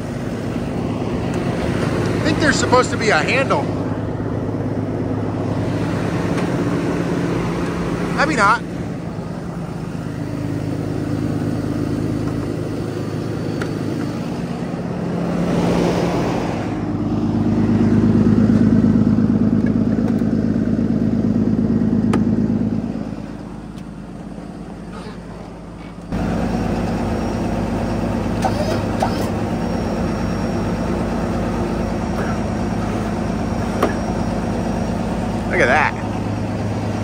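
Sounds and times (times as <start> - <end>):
diesel truck engine idling: 0.0 - 37.0.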